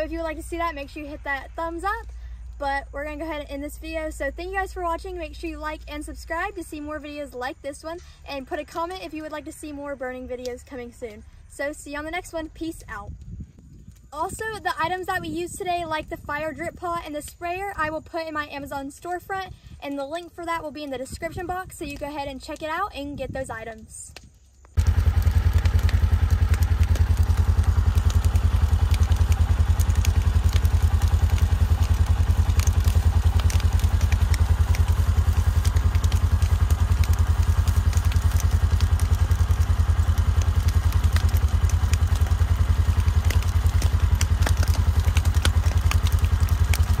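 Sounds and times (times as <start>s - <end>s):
grass fire crackling: 0.0s - 47.0s
pulsing low rumble: 24.8s - 47.0s.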